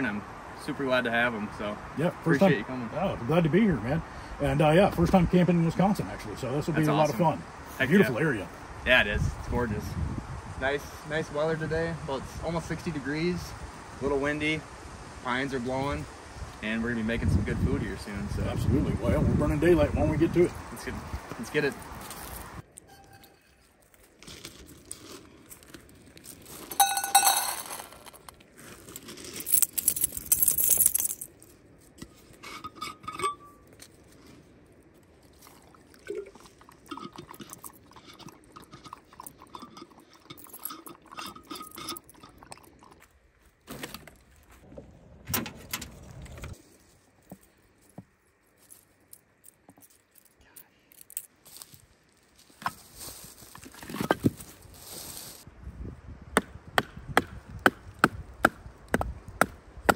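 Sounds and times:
metal bowl clinking: 26.8s - 28.0s, 32.4s - 33.6s, 36.8s - 42.6s
dog lapping water: 35.4s - 43.0s.

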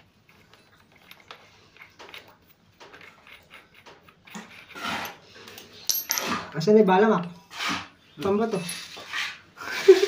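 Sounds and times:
small tools clicking and tapping: 0.0s - 6.3s.

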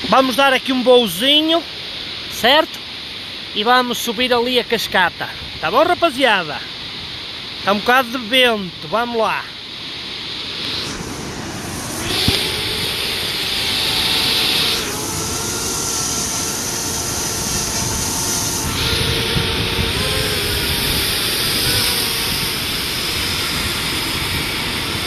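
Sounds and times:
waterfall rushing: 0.0s - 25.0s
wind: 0.0s - 25.0s
drone propeller whine: 5.8s - 25.0s.

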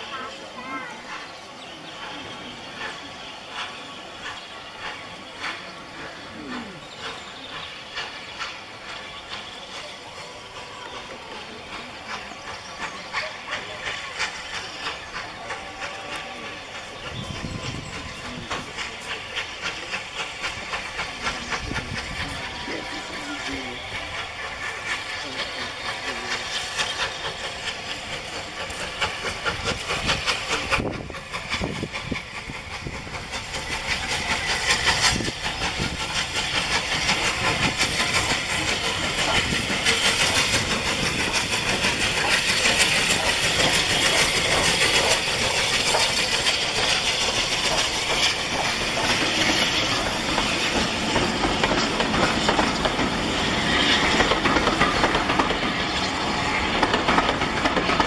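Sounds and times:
steam hissing: 0.0s - 58.0s
steam locomotive exhaust beats: 0.0s - 58.0s
train wheels clattering over rail joints: 24.0s - 58.0s.

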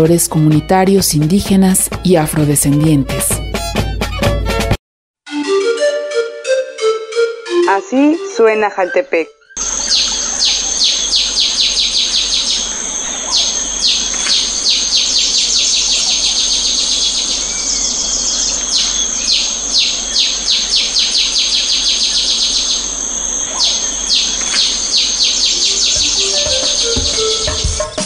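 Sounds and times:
bird calling in sharp notes: 7.4s - 28.0s
high-pitched insect drone: 9.6s - 27.9s.

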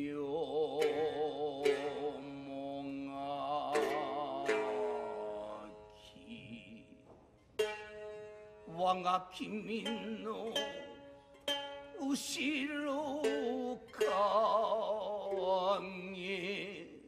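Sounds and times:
plucked shamisen notes: 0.0s - 6.7s, 7.5s - 17.0s.

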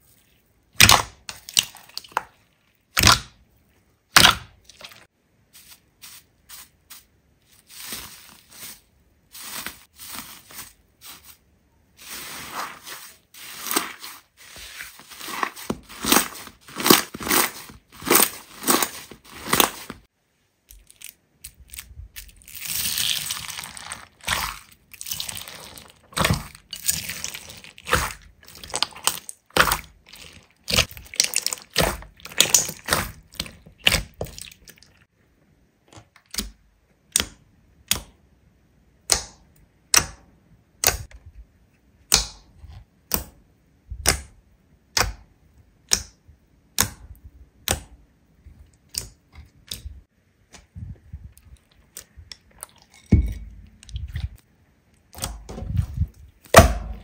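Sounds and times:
slime crackling and squelching: 0.0s - 3.4s, 4.1s - 20.1s, 20.7s - 35.1s.

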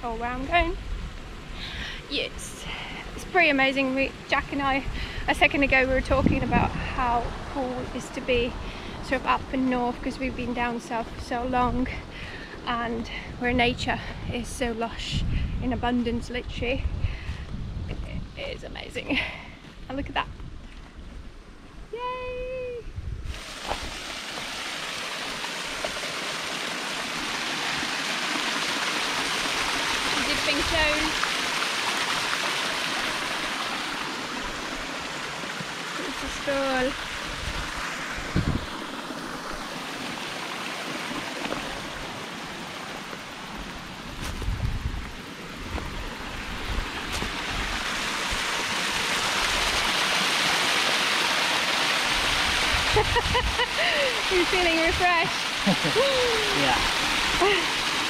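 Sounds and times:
stream splashing over rocks: 23.3s - 58.0s.

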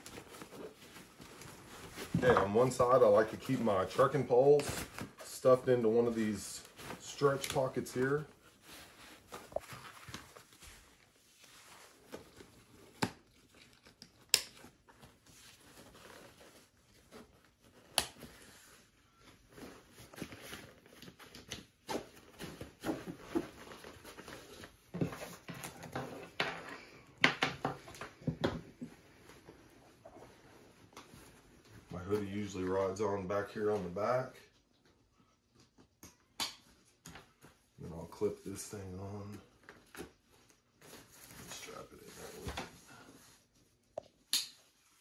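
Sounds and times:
backpack fabric rustling: 0.0s - 12.9s.

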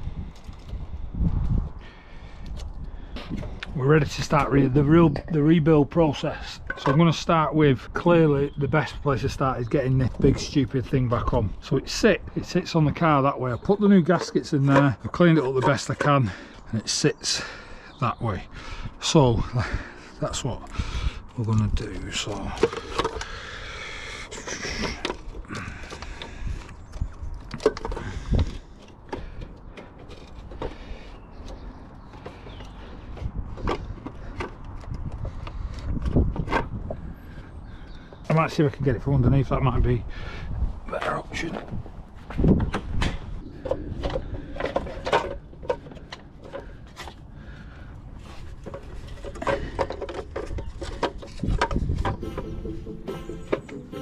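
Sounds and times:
metal parts knocking and scraping: 6.4s - 7.3s, 12.9s - 17.0s, 21.6s - 23.5s, 24.1s - 35.3s, 42.6s - 47.1s, 48.3s - 53.9s
tools clicking and knocking: 6.6s - 7.1s, 48.6s - 52.5s.

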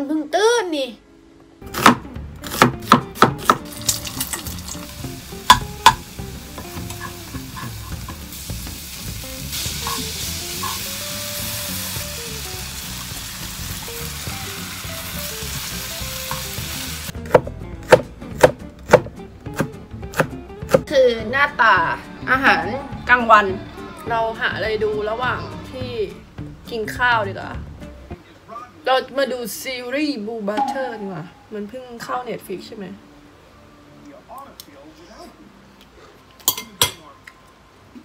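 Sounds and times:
knife chopping on cutting board: 1.7s - 3.7s, 17.2s - 20.8s
meat and onions sizzling: 2.5s - 17.6s
spatula scraping wok: 6.6s - 12.4s.

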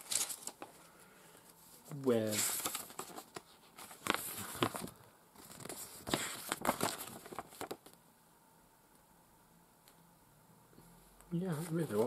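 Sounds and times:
paper pages rustling: 0.0s - 8.0s, 11.6s - 12.0s.

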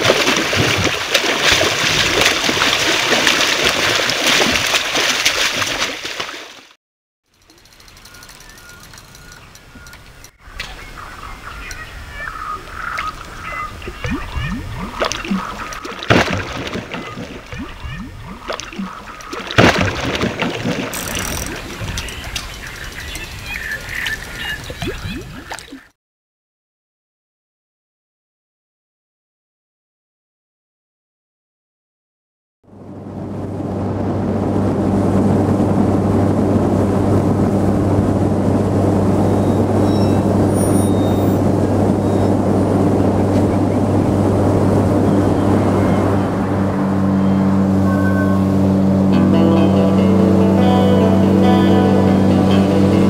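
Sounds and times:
loud water splashes: 0.0s - 6.8s, 12.9s - 25.8s
water splashing and gurgling: 0.0s - 6.8s, 10.4s - 25.9s
motorboat engine droning: 7.4s - 23.2s, 32.7s - 53.0s
short rising blips: 44.7s - 52.3s.

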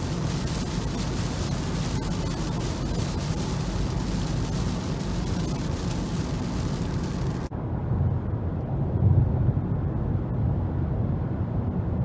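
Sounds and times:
tyres hissing on wet road: 0.0s - 7.5s
low rumble of tyres and engine: 0.0s - 12.0s.

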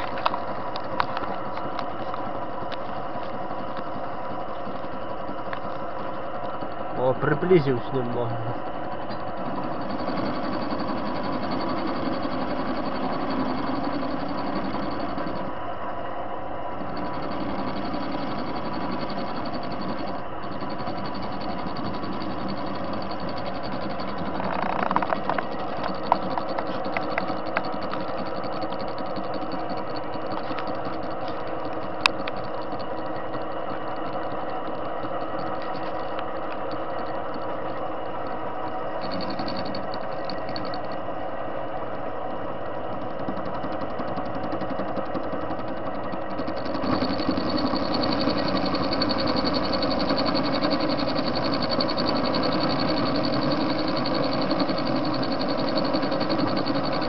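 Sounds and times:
metal lathe humming: 0.0s - 57.0s
cutting tool turning steel: 16.8s - 38.4s, 39.0s - 41.1s, 42.9s - 57.0s.

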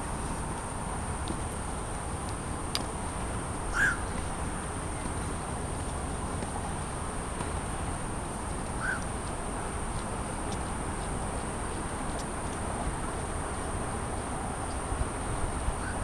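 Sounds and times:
distant traffic noise: 0.0s - 16.0s
bird call: 3.7s - 4.1s, 8.8s - 9.0s.

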